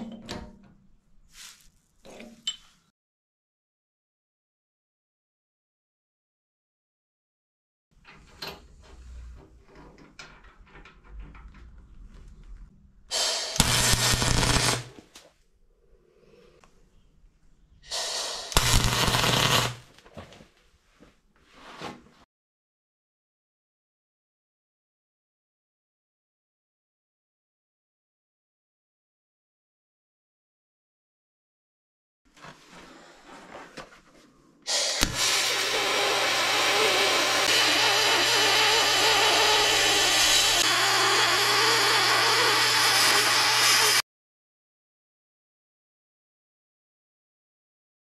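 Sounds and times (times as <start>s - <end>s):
welding arc crackling: 13.3s - 15.0s, 17.9s - 19.8s, 35.0s - 44.0s.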